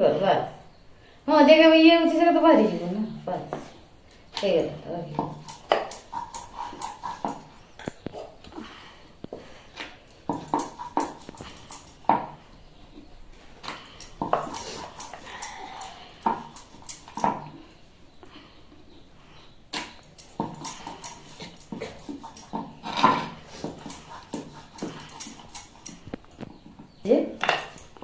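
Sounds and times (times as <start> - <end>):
knife on wooden board: 5.2 - 7.5, 10.2 - 12.3, 20.2 - 26.0.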